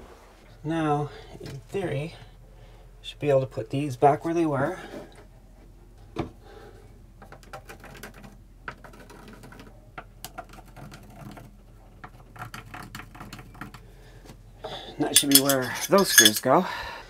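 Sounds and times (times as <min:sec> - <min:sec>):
small metal screws clicking: 0:15.2 - 0:16.5.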